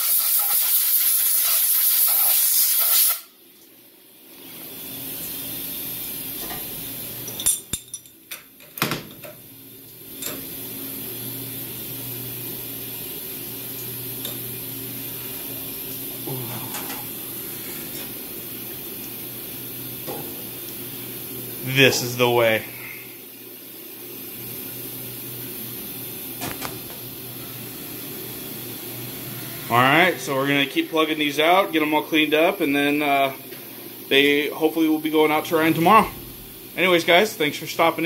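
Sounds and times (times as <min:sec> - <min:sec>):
steady hum: 0:09.1 - 0:38.0.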